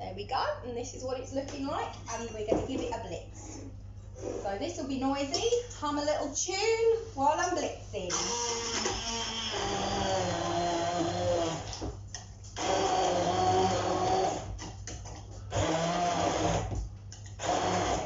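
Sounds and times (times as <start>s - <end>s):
stick blender blending vegetables: 8.1s - 11.8s, 12.6s - 14.6s, 15.5s - 16.8s, 17.4s - 18.0s.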